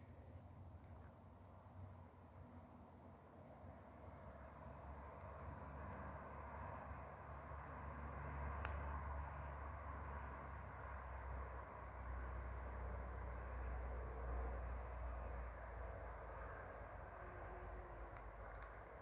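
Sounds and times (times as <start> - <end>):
click: 8.6 - 8.8.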